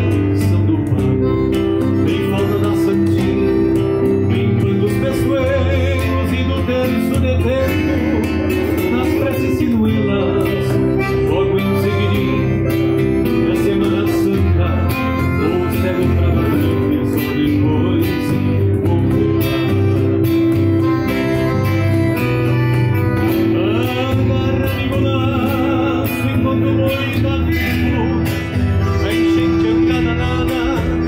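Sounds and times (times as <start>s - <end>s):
electric bass: 0.0s - 31.0s
guitar: 0.0s - 31.0s
man singing: 0.0s - 31.0s
piano accordion chords: 0.0s - 31.0s.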